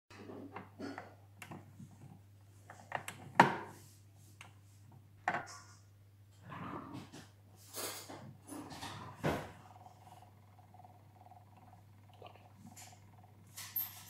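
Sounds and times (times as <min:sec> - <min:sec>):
faint low hum: 0:08.1 - 0:14.0.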